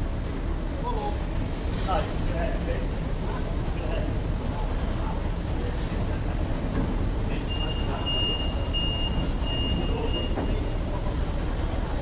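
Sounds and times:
high-pitched warning beeper: 7.5s - 10.6s.

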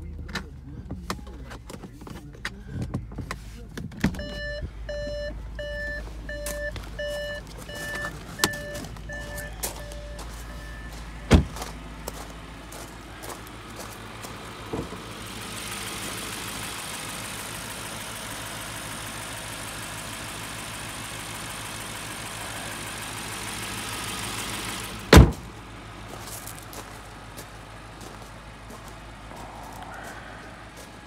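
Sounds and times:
car engine idling: 0.0s - 31.0s
car bonnet slamming shut: 11.3s - 11.6s, 14.7s - 15.0s, 25.1s - 25.5s.

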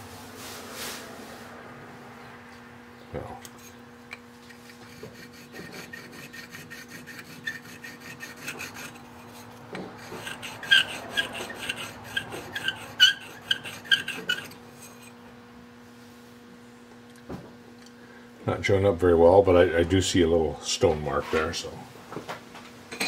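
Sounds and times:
steady low hum: 0.0s - 23.0s
stone scraping on steel: 4.6s - 15.2s.

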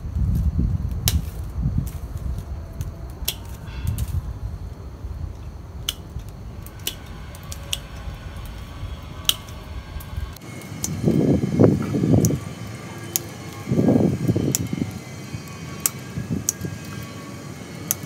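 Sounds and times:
low background rumble: 0.0s - 18.0s
pruning scissors snipping twigs: 0.9s - 4.3s, 5.4s - 8.6s, 9.2s - 11.2s.

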